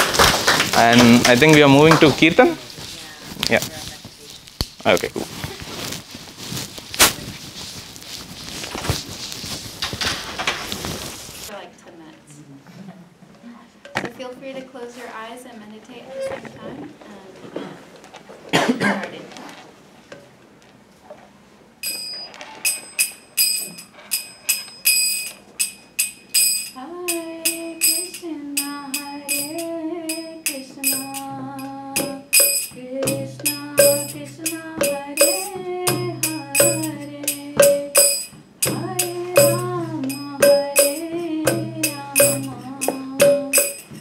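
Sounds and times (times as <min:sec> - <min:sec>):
drum beat: 0:00.0 - 0:02.6, 0:30.1 - 0:44.0
brass hand cymbals ringing: 0:21.8 - 0:31.3, 0:31.9 - 0:44.0
woman singing a chant: 0:26.8 - 0:43.9.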